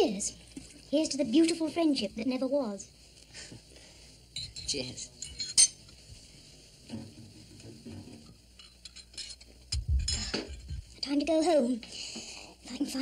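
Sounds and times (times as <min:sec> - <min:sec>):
drinking glasses clinking: 0:04.4 - 0:05.8
clatter of glasses and crockery: 0:08.0 - 0:10.8.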